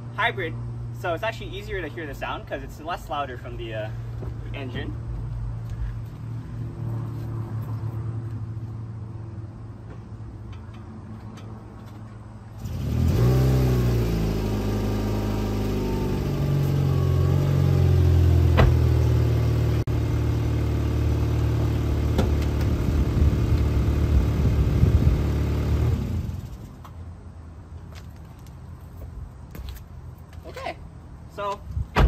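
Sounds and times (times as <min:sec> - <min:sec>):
car engine starting and running: 0:04.0 - 0:27.0.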